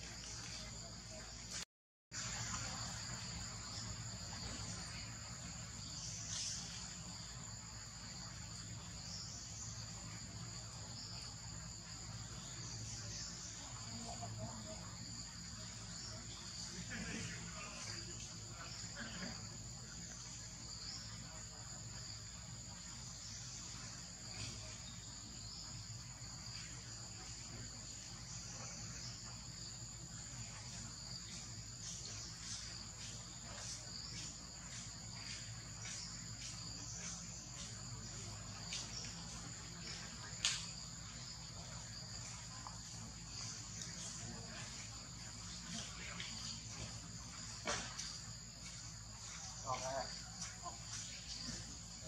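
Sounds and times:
faint clicks: 40.4s - 40.7s.

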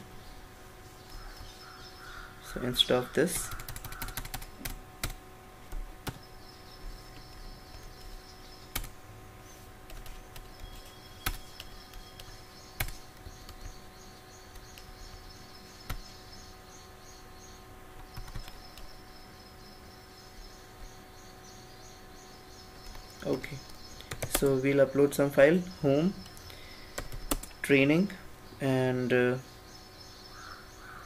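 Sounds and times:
faint steady hum: 0.0s - 31.0s
computer keyboard keystrokes: 3.4s - 6.2s, 7.2s - 8.9s, 9.9s - 13.7s, 18.0s - 18.9s, 24.1s - 24.5s, 27.0s - 27.6s
faint high chirping: 6.1s - 31.0s.

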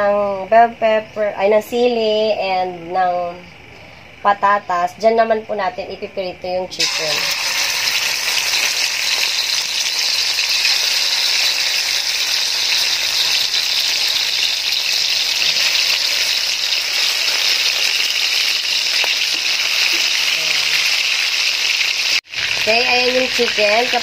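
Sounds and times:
chicken frying in hot oil: 6.8s - 24.0s.

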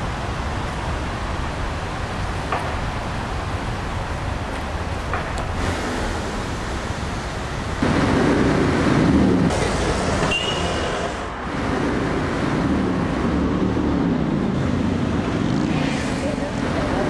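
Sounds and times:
vehicles passing on street: 0.0s - 17.0s
high squeal: 10.0s - 11.3s.

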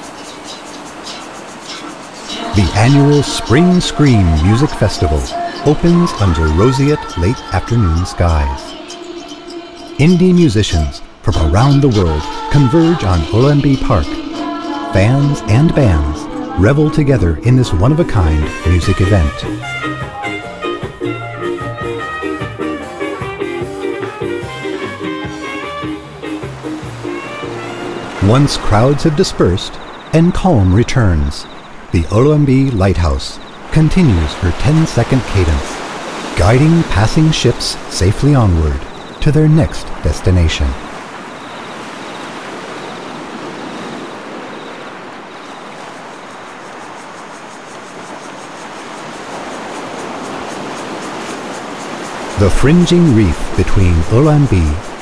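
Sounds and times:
faint high-pitched chirping: 0.0s - 19.6s, 29.4s - 32.4s, 41.3s - 49.2s
surf on rocky shore: 0.0s - 21.1s, 22.2s - 55.0s
live band playing upbeat music: 19.8s - 26.0s.

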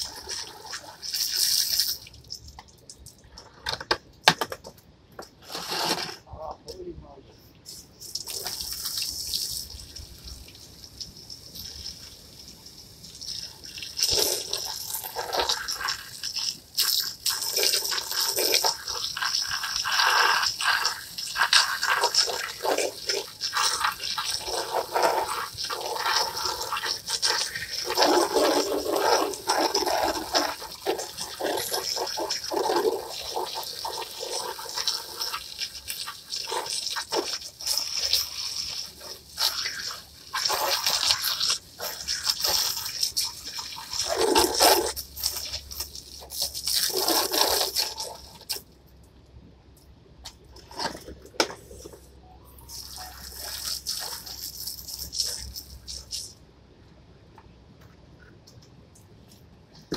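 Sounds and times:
hose water spraying on plastic chair: 0.0s - 2.6s, 7.6s - 48.6s, 52.7s - 56.4s.

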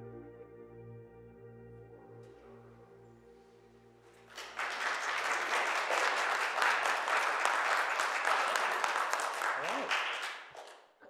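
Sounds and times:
ambient music sustained tones: 0.0s - 4.4s
audience applauding: 4.2s - 10.9s.

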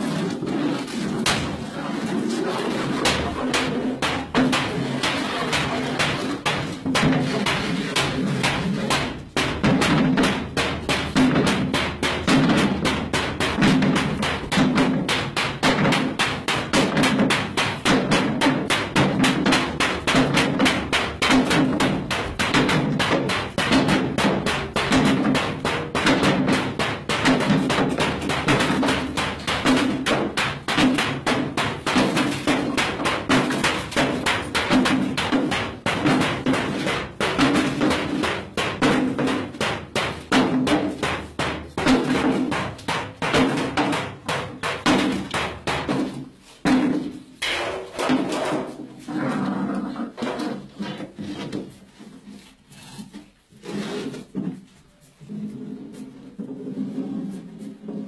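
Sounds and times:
frame drum beating: 3.0s - 47.1s.

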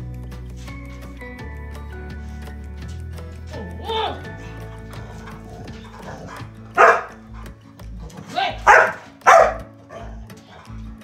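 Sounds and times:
background music: 0.0s - 11.0s
dog barking: 5.3s - 7.5s, 8.5s - 10.2s.

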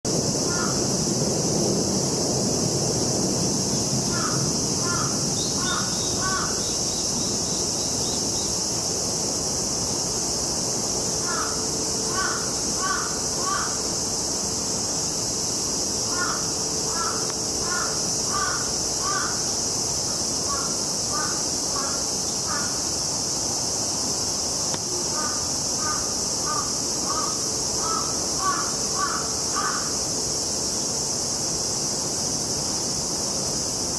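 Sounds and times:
cicadas droning: 0.1s - 33.9s
crow cawing: 0.5s - 0.8s, 4.1s - 6.7s, 11.2s - 13.8s, 16.1s - 19.4s, 20.5s - 22.7s, 25.2s - 29.9s.

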